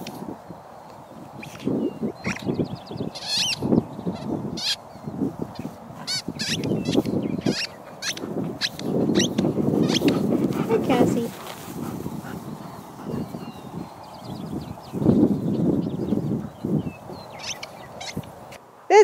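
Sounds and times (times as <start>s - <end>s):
rubber dog ball squeaking: 6.1s - 10.1s.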